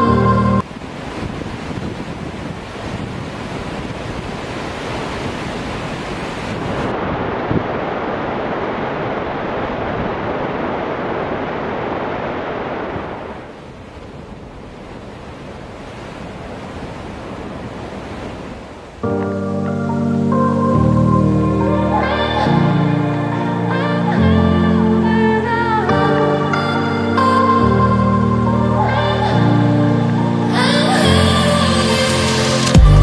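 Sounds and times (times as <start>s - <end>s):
water rushing from dam outlet: 0.0s - 19.0s
wind on microphone: 0.0s - 25.2s.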